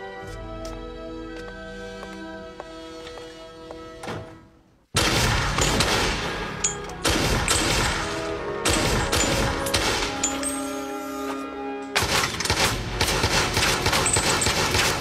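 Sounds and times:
music: 0:00.0 - 0:15.0
handgun firing rapidly: 0:07.0 - 0:10.3, 0:12.0 - 0:15.0.

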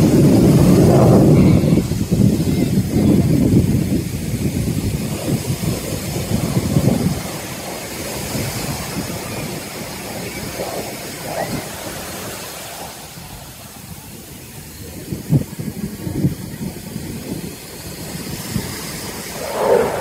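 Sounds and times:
aircraft engine rumbling: 0:16.4 - 0:20.0.

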